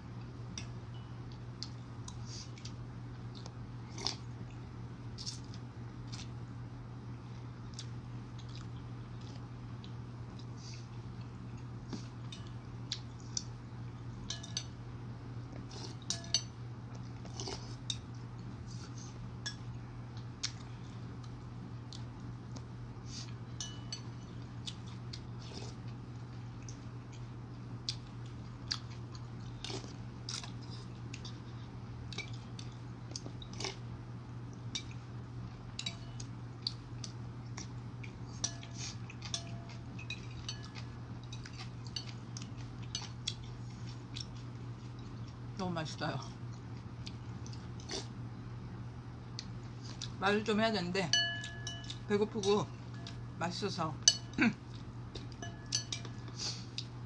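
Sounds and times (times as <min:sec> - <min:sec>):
steady low hum: 0:00.0 - 0:57.0
chewing: 0:01.3 - 0:04.6, 0:07.3 - 0:13.5, 0:16.9 - 0:23.4, 0:24.0 - 0:33.9, 0:34.5 - 0:45.4, 0:46.4 - 0:48.2, 0:49.3 - 0:50.2
spoon clinking against ceramic bowl: 0:14.3 - 0:14.7, 0:23.6 - 0:24.3, 0:51.1 - 0:52.1, 0:54.0 - 0:54.4, 0:55.4 - 0:56.2.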